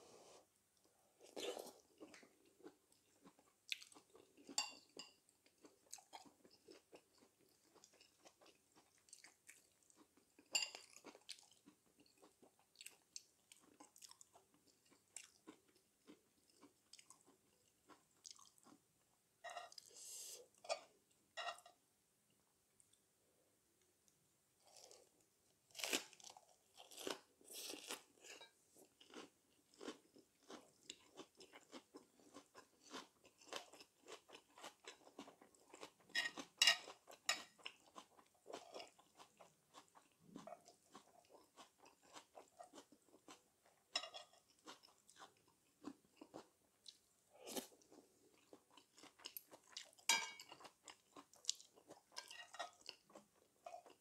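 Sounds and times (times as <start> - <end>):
person chewing crunchy lettuce: 5.6 - 18.8, 24.6 - 54.0.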